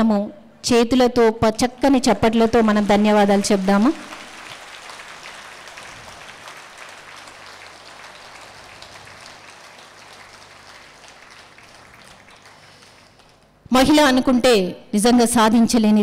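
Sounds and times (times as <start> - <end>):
audience applauding: 2.1 - 13.5.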